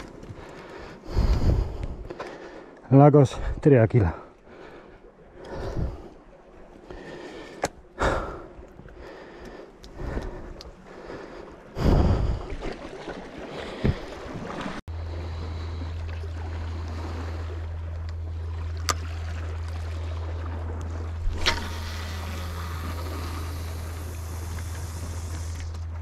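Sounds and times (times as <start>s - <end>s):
sea wash on rocky shore: 0.0s - 26.0s
steady low hum: 14.9s - 26.0s.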